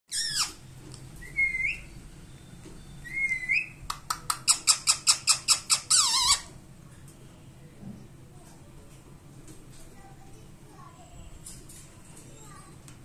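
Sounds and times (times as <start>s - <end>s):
parakeet calling: 0.1s - 0.6s, 4.4s - 6.5s.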